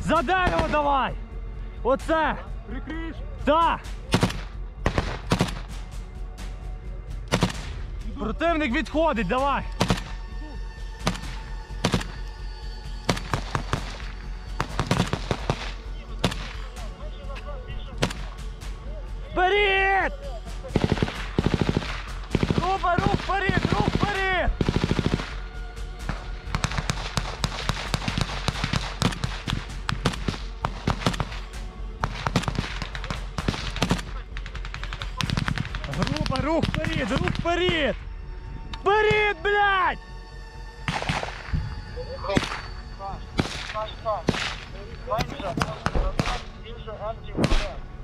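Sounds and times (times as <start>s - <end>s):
rifle gunshots: 4.1s - 5.7s, 7.3s - 7.8s, 9.8s - 10.2s, 11.0s - 12.2s, 14.6s - 16.7s, 18.0s - 18.4s, 20.7s - 25.4s, 26.1s - 37.4s, 40.9s - 41.5s, 43.4s - 44.7s, 47.4s - 47.8s.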